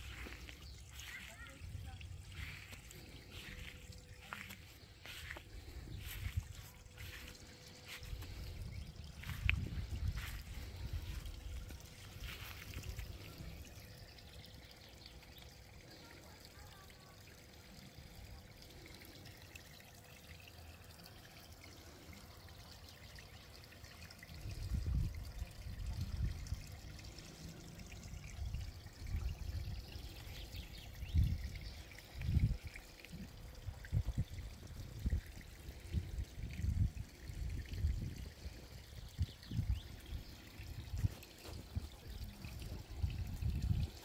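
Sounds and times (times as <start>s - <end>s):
water trickling: 0.0s - 44.0s
wind buffeting microphone: 5.0s - 13.1s, 24.4s - 26.6s, 32.2s - 44.0s.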